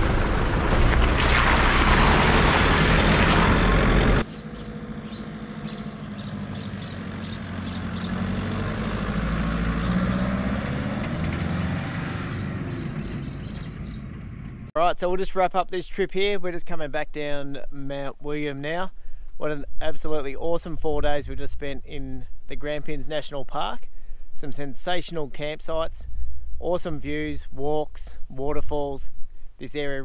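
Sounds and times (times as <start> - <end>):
car engine passing: 0.0 - 14.7
wind: 0.0 - 30.0.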